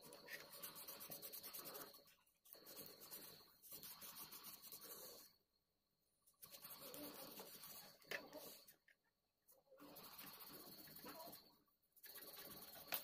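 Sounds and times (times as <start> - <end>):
cotton wad rubbing metal: 0.0 - 5.3, 6.4 - 8.7.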